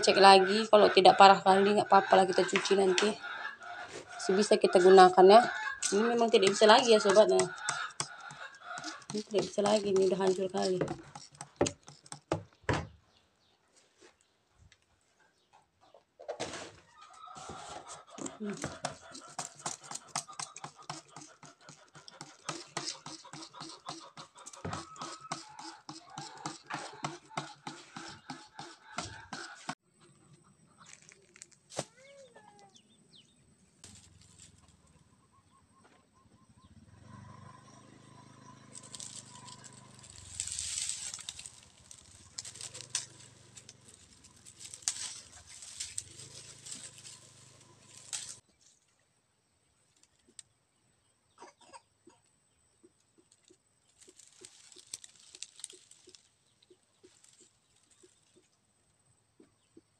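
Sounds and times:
chickens clucking: 0:00.0 - 0:11.5, 0:15.2 - 0:31.0, 0:33.9 - 0:48.4
rustling of cloth and palm fronds: 0:05.3 - 0:12.2, 0:30.8 - 0:32.7, 0:33.8 - 0:35.0, 0:38.5 - 0:49.0, 0:53.2 - 0:58.6.

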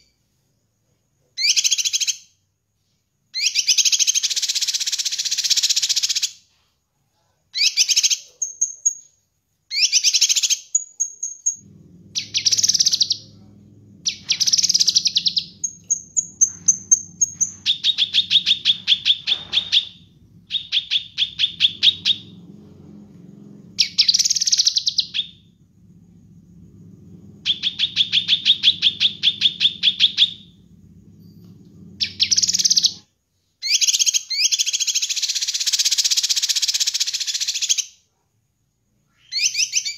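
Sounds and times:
faint low hum: 0:06.5 - 0:33.6
bird singing: 0:09.8 - 0:33.0.

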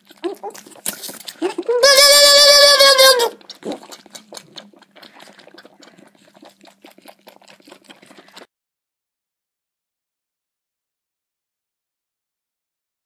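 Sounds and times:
kid sucking from bottle: 0:00.0 - 0:06.1
goat kid bleating: 0:00.1 - 0:04.0.

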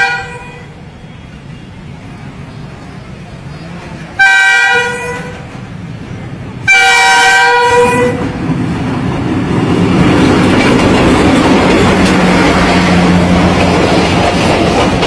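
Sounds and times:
locomotive horn blasts: 0:00.0 - 0:00.8, 0:04.2 - 0:05.4, 0:06.7 - 0:08.2
train rumble and wheel clatter: 0:00.0 - 0:15.0.

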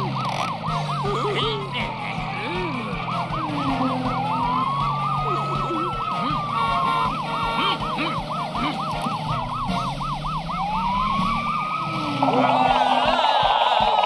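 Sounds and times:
fast yelping siren: 0:00.0 - 0:14.0
slow wailing siren: 0:00.0 - 0:14.0
car horn beeping: 0:06.3 - 0:08.2.

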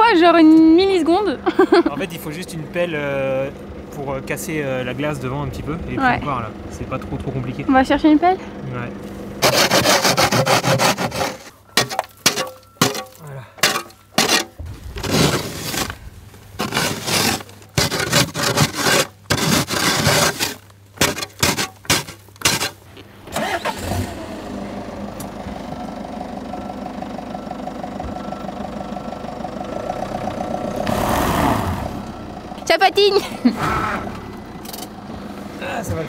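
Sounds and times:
van engine starting and running: 0:00.0 - 0:36.0
shovel chopping and scraping ice: 0:09.4 - 0:22.8.

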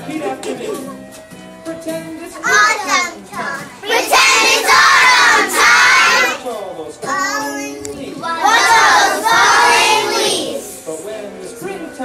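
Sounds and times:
children singing and shouting: 0:01.8 - 0:10.9.

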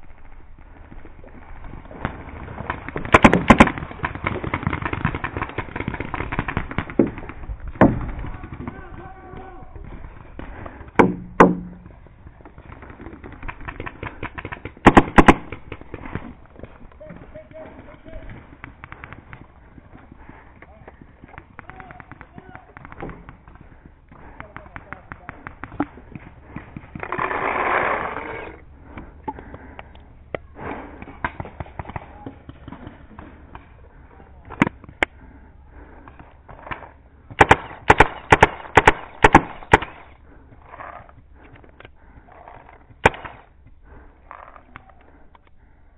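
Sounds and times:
faint distant paintball pops: 0:01.9 - 0:27.3, 0:28.9 - 0:35.2
sharp taps and clicks: 0:18.3 - 0:20.0, 0:20.6 - 0:27.1.

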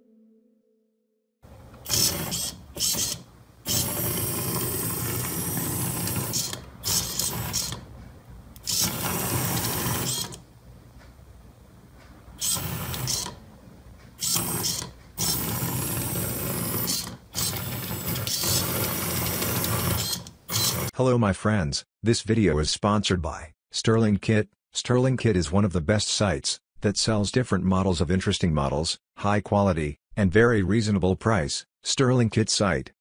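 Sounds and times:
robot tracks whirring clatter: 0:01.8 - 0:07.9, 0:08.6 - 0:10.4, 0:12.4 - 0:13.4, 0:14.2 - 0:20.9.

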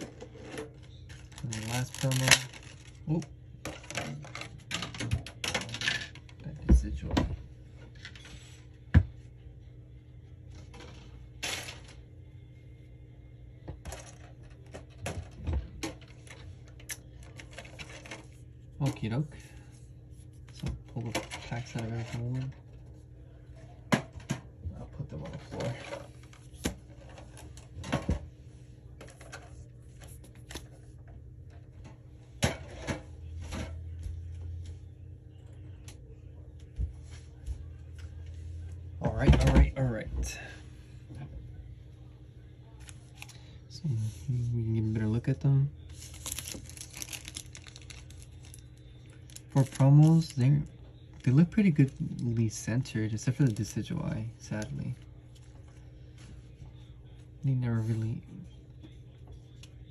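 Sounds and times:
low steady hum: 0:00.0 - 0:59.9
cards and packaging clicking: 0:00.4 - 0:03.1, 0:45.9 - 0:50.7.

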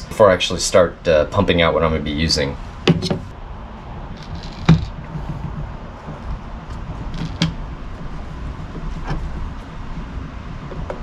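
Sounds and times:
steady low rumble: 0:00.0 - 0:11.0
dispensing pump clacking: 0:04.1 - 0:11.0.

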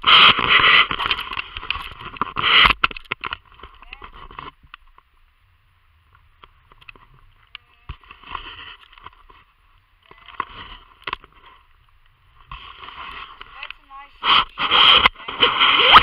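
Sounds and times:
rustling on camera microphone: 0:00.0 - 0:05.1, 0:06.1 - 0:16.0
wind noise: 0:00.0 - 0:05.2, 0:10.2 - 0:16.0.

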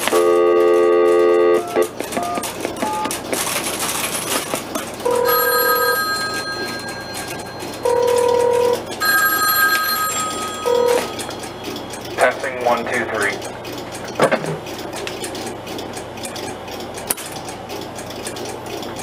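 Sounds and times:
telephone ringing: 0:00.0 - 0:03.2, 0:04.9 - 0:12.4.

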